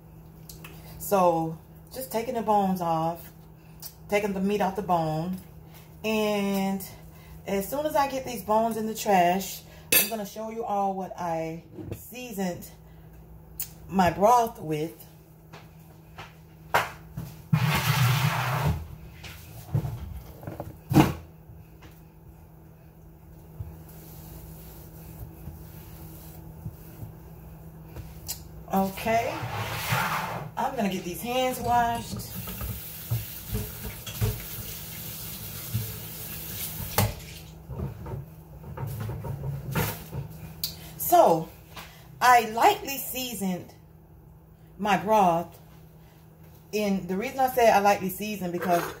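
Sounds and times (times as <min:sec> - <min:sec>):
paper towel rustling: 0:23.4 - 0:27.6.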